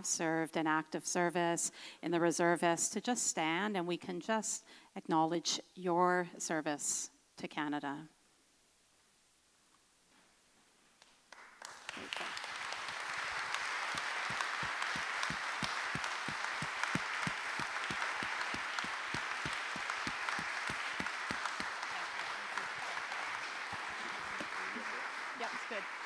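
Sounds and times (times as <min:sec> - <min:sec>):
nearer sharp claps: 0:11.0 - 0:26.0
congregation applauding: 0:11.3 - 0:26.0.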